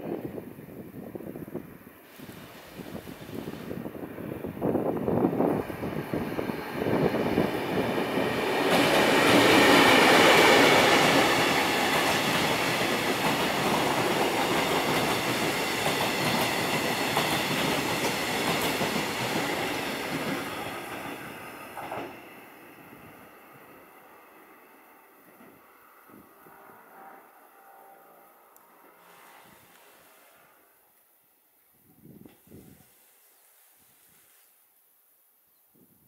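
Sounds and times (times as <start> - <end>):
train rumble and wheel noise: 0.0 - 30.0.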